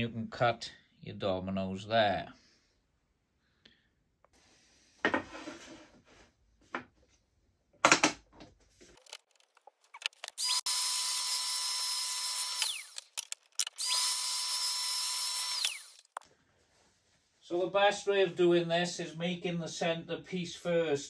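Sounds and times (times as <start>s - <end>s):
power tool motor running: 10.2s - 16.2s.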